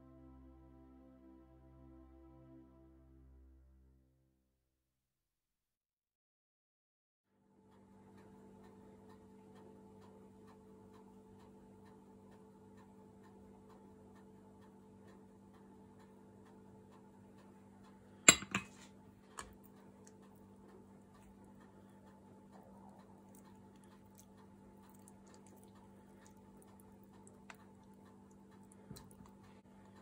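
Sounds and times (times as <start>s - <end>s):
faint regular ticking: 7.6s - 18.3s, 19.0s - 30.0s
steady low hum: 7.9s - 30.0s
glass jug clinking on surface: 18.3s - 18.8s.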